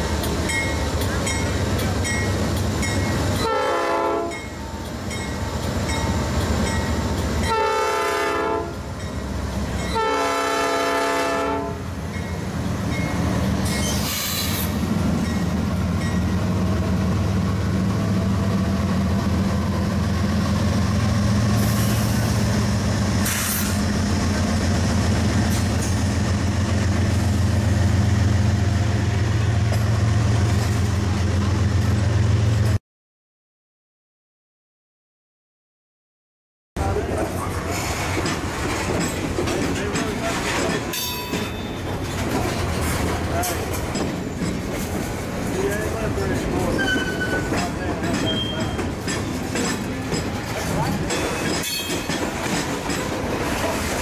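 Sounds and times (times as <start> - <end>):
train horn blasts: 3.4 - 4.5, 7.4 - 8.8, 9.9 - 11.8
wheels squealing on rails: 12.1 - 16.4, 21.2 - 23.9, 37.2 - 54.0.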